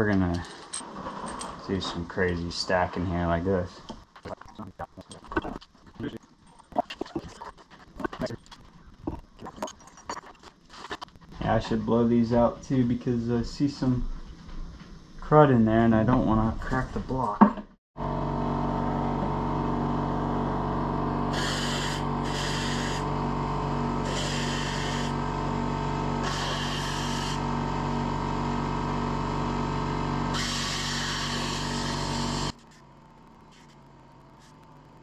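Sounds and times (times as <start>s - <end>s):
steady mechanical hum: 18.1s - 35.0s
compressed air gun hissing: 21.4s - 23.0s, 30.4s - 32.4s.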